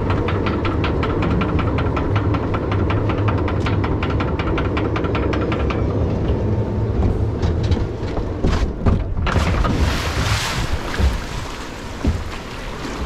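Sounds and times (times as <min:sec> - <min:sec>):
clicks and knocks: 0:00.0 - 0:09.9
flume boat rumbling on track: 0:00.0 - 0:13.0
rushing water splash: 0:09.3 - 0:13.0.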